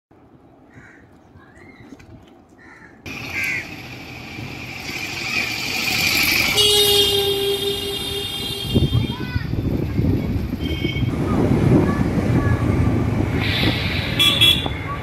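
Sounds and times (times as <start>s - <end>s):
road traffic noise: 0.1s - 15.0s
vehicle horn: 6.4s - 9.3s, 10.6s - 11.2s, 14.1s - 15.0s.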